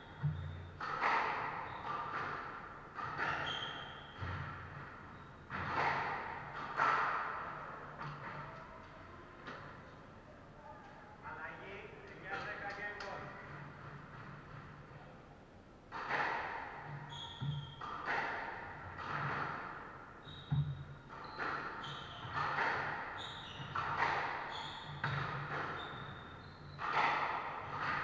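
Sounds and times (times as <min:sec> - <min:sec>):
squash ball hits echoing: 0:00.0 - 0:08.6, 0:15.9 - 0:28.0
shoes squeaking on wooden floor: 0:03.0 - 0:05.9, 0:17.0 - 0:17.9, 0:20.2 - 0:27.2.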